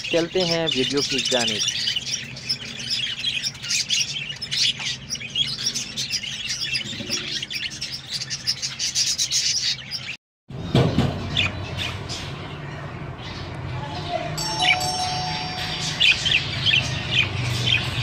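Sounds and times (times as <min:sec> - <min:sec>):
budgerigars chirping: 0:00.0 - 0:10.2, 0:15.5 - 0:18.0.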